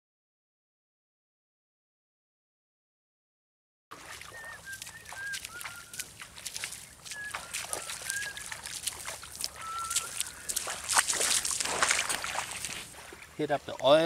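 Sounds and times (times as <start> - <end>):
footsteps splashing in seawater: 3.9 - 14.0
bird whistled calls: 4.1 - 6.1, 6.8 - 8.7, 9.5 - 10.8.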